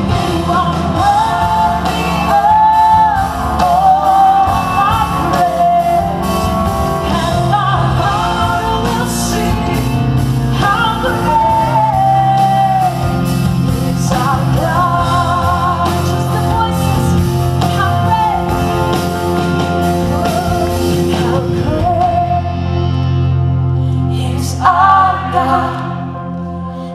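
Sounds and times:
woman singing: 0:00.0 - 0:22.8, 0:23.9 - 0:26.2
live rock band playing: 0:00.0 - 0:26.9.

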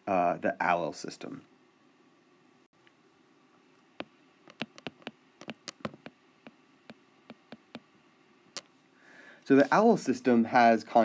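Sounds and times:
stylus tapping on tablet screen: 0:04.0 - 0:07.9.

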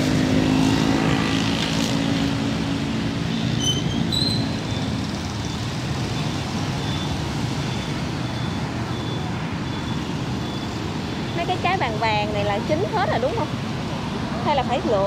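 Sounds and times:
motorbike passing close: 0:00.0 - 0:09.6
traffic rumble: 0:00.0 - 0:15.0.

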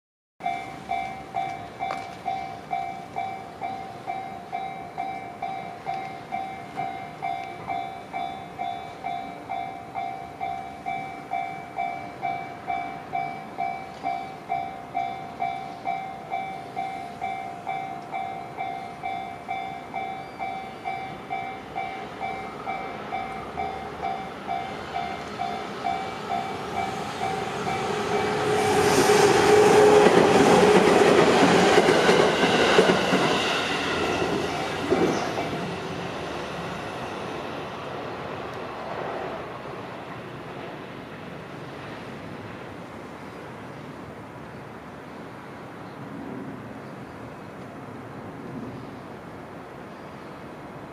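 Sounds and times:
level-crossing warning bell: 0:00.4 - 0:37.6
train running on rails: 0:00.4 - 0:50.9.

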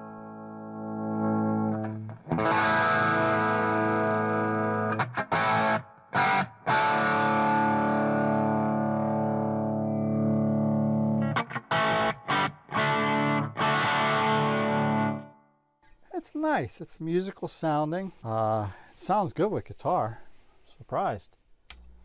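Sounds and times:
electric guitar chords: 0:00.0 - 0:15.4.

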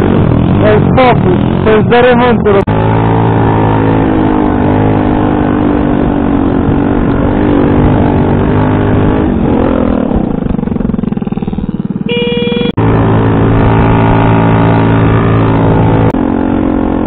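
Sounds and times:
motor scooter engine running: 0:09.5 - 0:16.3.

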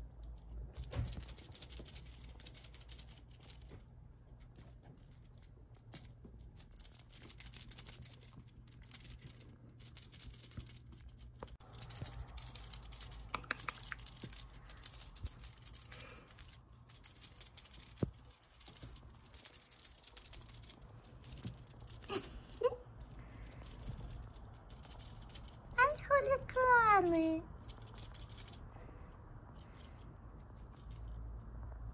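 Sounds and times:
kittens rustling and scratching: 0:00.0 - 0:31.9
low steady hum: 0:00.0 - 0:31.9
sharp clicks: 0:13.1 - 0:14.4.

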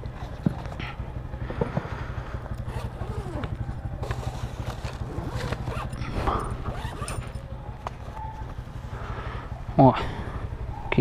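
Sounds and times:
motorcycle idling: 0:00.0 - 0:11.0
backpack zipper: 0:02.7 - 0:07.4.

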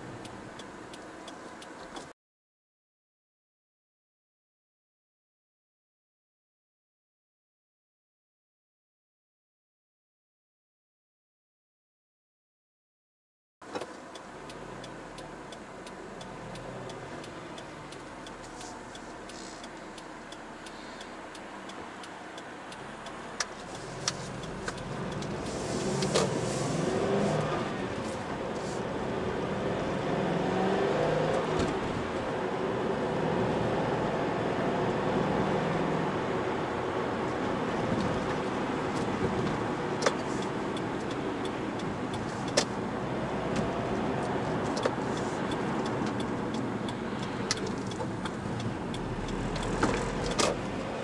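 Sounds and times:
car engine and road noise: 0:00.0 - 0:02.2, 0:13.6 - 0:51.0.

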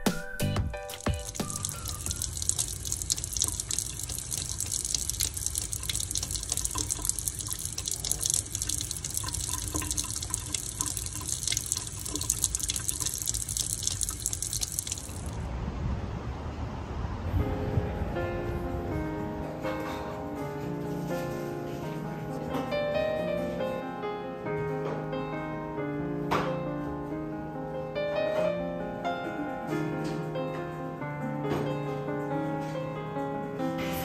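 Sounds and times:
faucet running into metal sink: 0:00.9 - 0:15.4.

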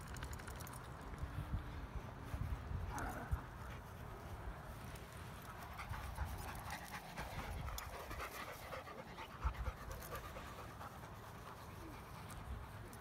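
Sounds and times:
dog panting: 0:05.4 - 0:12.9.

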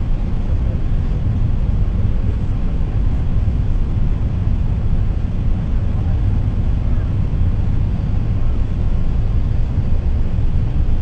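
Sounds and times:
airliner cabin engine rumble: 0:00.0 - 0:11.0.

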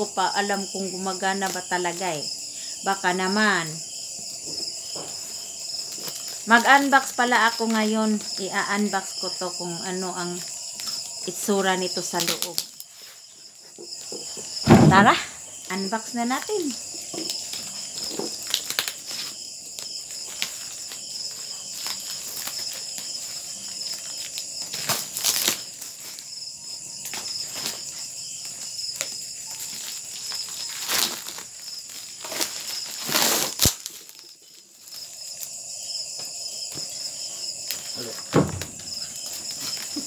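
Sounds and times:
insects chirring: 0:00.0 - 0:40.0
cardboard crinkling: 0:04.6 - 0:08.4, 0:16.4 - 0:26.3, 0:27.0 - 0:35.6, 0:36.2 - 0:40.0
packing tape ripping: 0:05.8 - 0:06.4, 0:12.1 - 0:13.0, 0:17.1 - 0:26.3, 0:27.0 - 0:35.5, 0:37.6 - 0:40.0.

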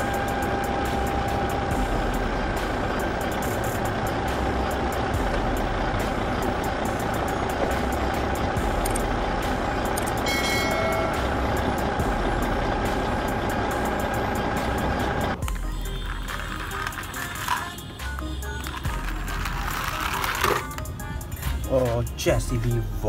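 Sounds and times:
toy electric motor whirring: 0:15.5 - 0:21.6.

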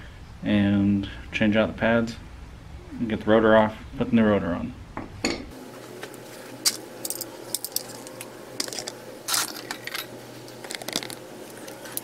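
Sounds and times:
metal tools clinking: 0:06.7 - 0:11.2.

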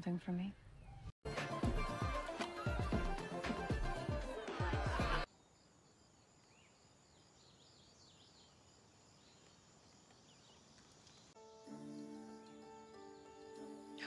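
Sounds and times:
music with thumping beat: 0:01.3 - 0:05.3.

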